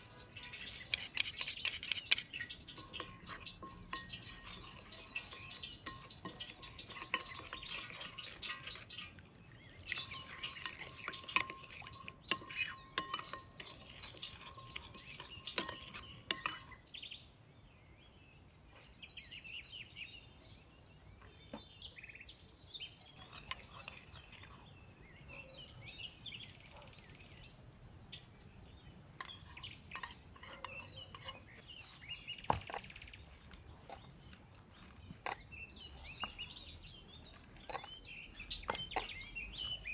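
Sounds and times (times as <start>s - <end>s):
metal spoon scraping ceramic bowl: 0.0s - 17.0s, 23.0s - 25.6s, 29.1s - 39.9s
birds chirping: 0.0s - 39.9s.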